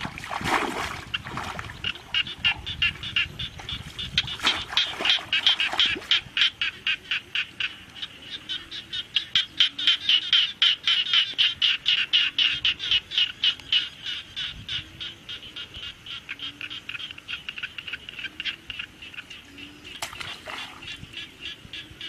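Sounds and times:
wading in muddy water: 0.0s - 9.0s, 17.9s - 22.0s
frog calling rapidly: 0.7s - 22.0s.

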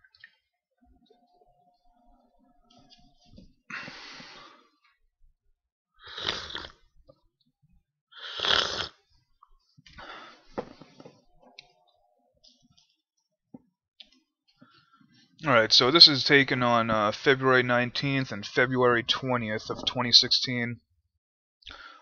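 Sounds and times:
person breathing heavily: 3.7s - 4.8s, 9.9s - 11.1s, 21.7s - 22.0s.

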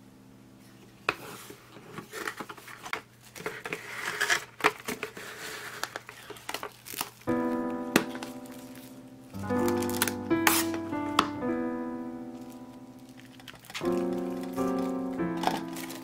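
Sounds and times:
plastic cling film crinkling: 2.0s - 11.4s, 12.2s - 16.0s
background music: 7.3s - 16.0s.

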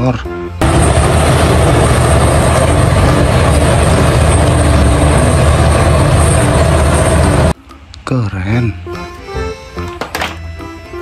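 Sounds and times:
excavator diesel engine rumbling: 0.6s - 7.6s.

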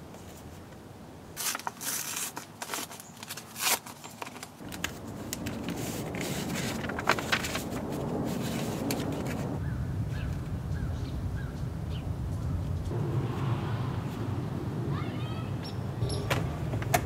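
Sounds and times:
low background noise: 0.0s - 17.0s
sharp paper snaps: 1.4s - 9.4s
paper rustling and crinkling: 1.4s - 9.6s.

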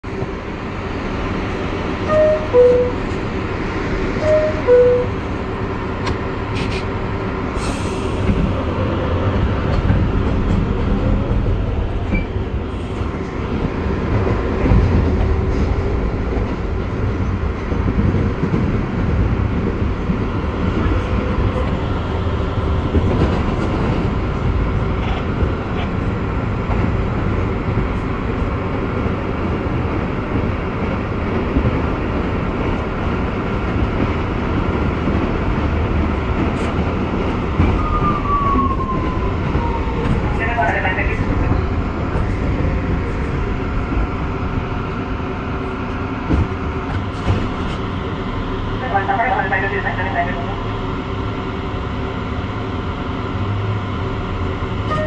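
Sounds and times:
subway car wheel and rail noise: 0.0s - 55.0s
two-note falling chime: 4.2s - 5.1s.

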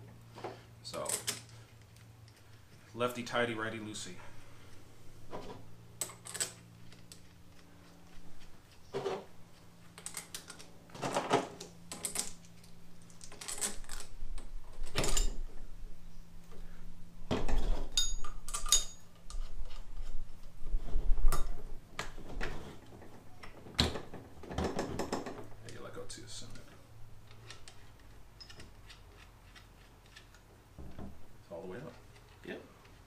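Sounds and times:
faint steady hum: 0.0s - 33.0s
metal parts clinking: 11.9s - 14.1s, 17.9s - 19.1s.

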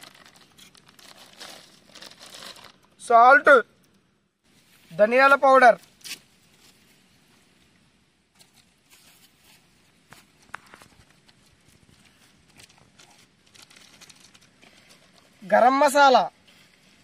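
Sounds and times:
plastic sachet rustling: 0.0s - 3.0s, 8.5s - 15.4s.

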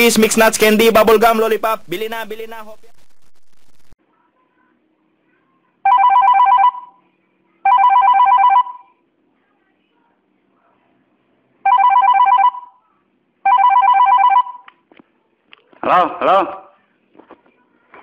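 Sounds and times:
warbling electronic telephone ring: 5.9s - 7.0s, 7.7s - 8.9s, 11.7s - 12.8s, 13.5s - 14.6s.

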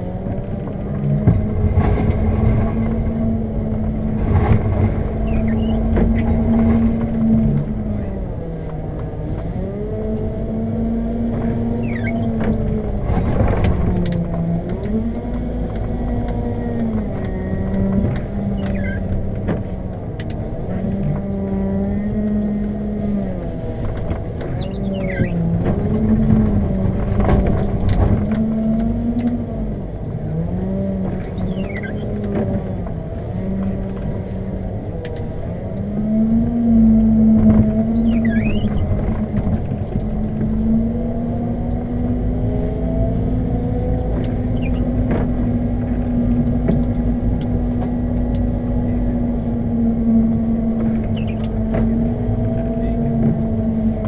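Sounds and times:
machine knocks and clatter: 0.7s - 7.7s.

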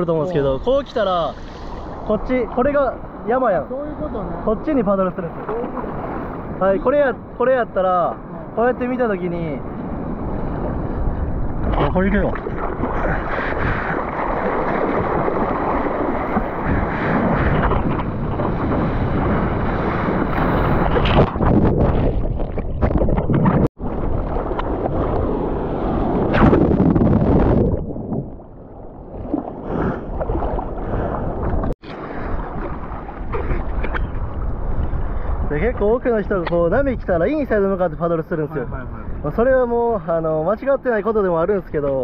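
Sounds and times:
seawater rushing and splashing: 0.0s - 35.7s
wind buffeting microphone: 8.2s - 40.9s.

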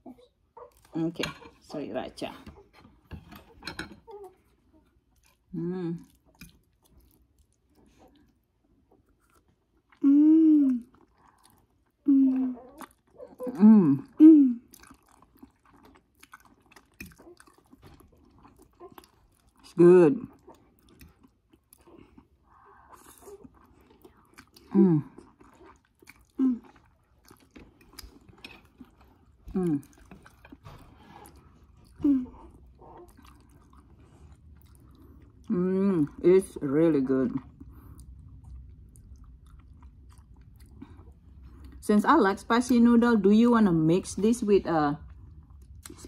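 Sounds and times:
soft chewing: 0.0s - 41.9s, 45.0s - 46.0s
person humming mmm: 5.5s - 6.1s, 10.0s - 10.9s, 12.0s - 12.8s, 13.4s - 14.7s, 32.0s - 32.4s.

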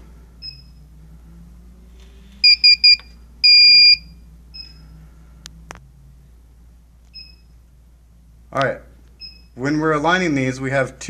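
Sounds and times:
electronic beeper beeping: 2.4s - 4.8s
faint single beeps: 2.4s - 4.9s.

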